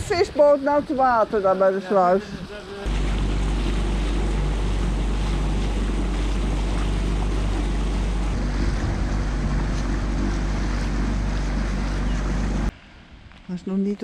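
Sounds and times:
outboard motor running: 0.0 - 12.7
water rushing: 0.0 - 12.7
wind: 0.0 - 14.0.

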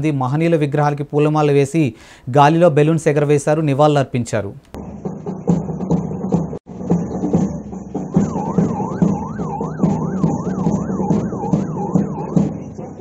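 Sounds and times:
steady drumbeat: 4.8 - 13.0
police siren yelping: 7.5 - 13.0.

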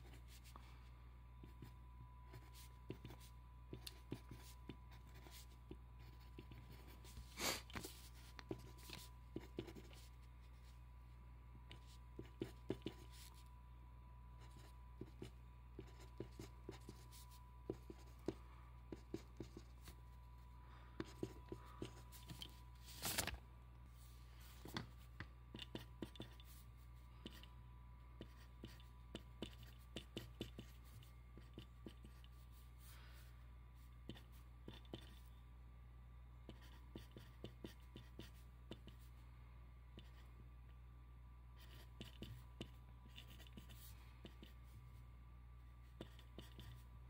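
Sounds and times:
faint steady hum: 0.0 - 47.0
pen scratching on paper: 2.3 - 10.7, 11.8 - 13.4, 14.4 - 20.0, 21.0 - 22.5, 25.5 - 26.6, 28.2 - 32.4, 34.0 - 35.3, 36.5 - 39.0, 41.6 - 44.6, 45.8 - 46.8.

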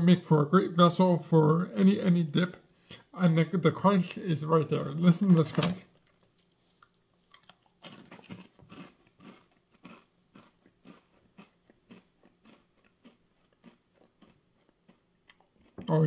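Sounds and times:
potato chip crunching: 7.3 - 16.0.

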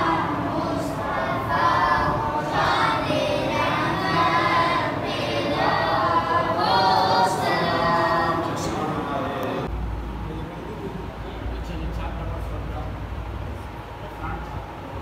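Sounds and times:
men chanting in unison: 0.0 - 9.7.

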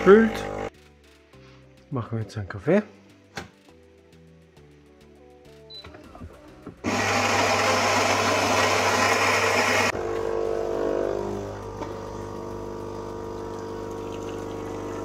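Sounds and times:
coffee grinder running: 0.0 - 0.7, 6.8 - 15.0
motor hum: 0.0 - 0.7, 6.8 - 15.0.

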